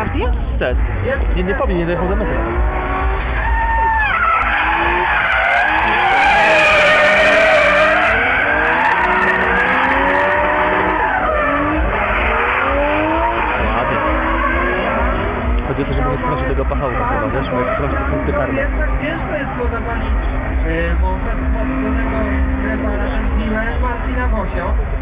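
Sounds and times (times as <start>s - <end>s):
engines revving high: 0.0s - 25.0s
tyres squealing: 3.2s - 15.3s.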